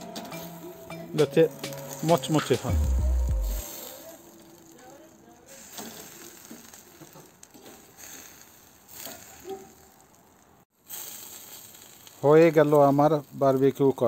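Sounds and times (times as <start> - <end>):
chicken sizzling on a grill: 0.0 - 14.0
fork clicking and scraping on grill: 5.5 - 10.5.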